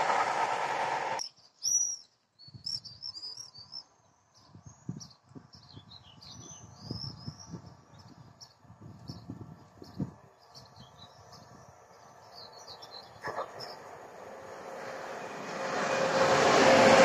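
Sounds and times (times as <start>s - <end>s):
train rumble: 0.0s - 1.2s, 7.6s - 17.0s
small birds chirping: 1.2s - 14.0s.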